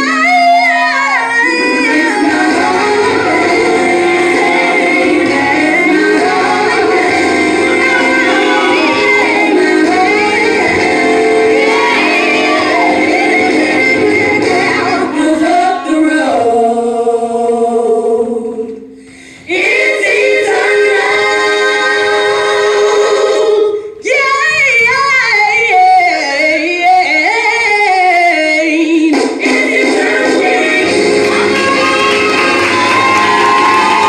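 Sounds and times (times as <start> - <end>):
women singing gospel song: 0.0 - 34.0.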